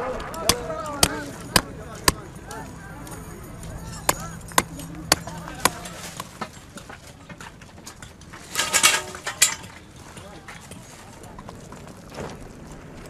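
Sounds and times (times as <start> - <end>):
faint voices: 0.0 - 13.0.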